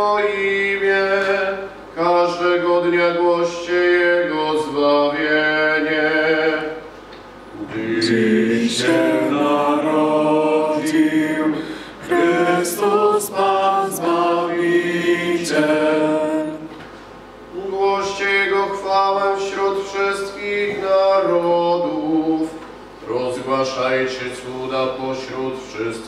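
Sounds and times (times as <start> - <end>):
man breathing: 11.6 - 12.1
man chanting unaccompanied: 17.5 - 26.0.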